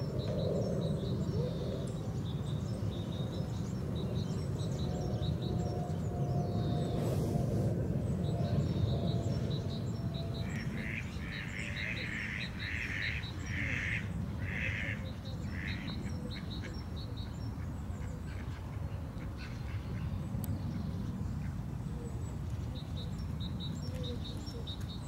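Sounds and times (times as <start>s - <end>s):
steady low rumble: 0.0s - 12.7s.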